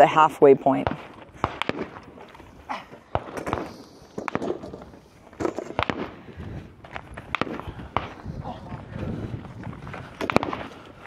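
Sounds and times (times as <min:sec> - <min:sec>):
pistol shots: 0:00.8 - 0:02.1, 0:03.1 - 0:04.7, 0:05.4 - 0:06.2.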